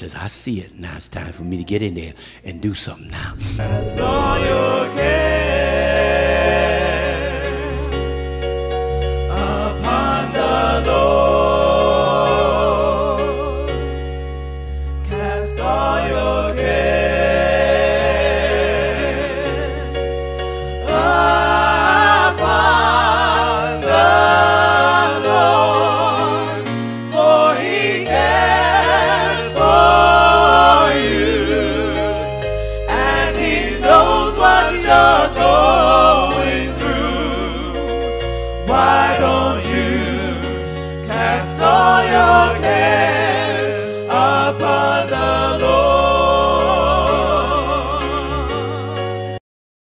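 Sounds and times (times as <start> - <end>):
gospel singers with vibrato: 1.4 - 49.4
steady bass: 2.9 - 6.6
electronic keyboard: 3.0 - 49.4.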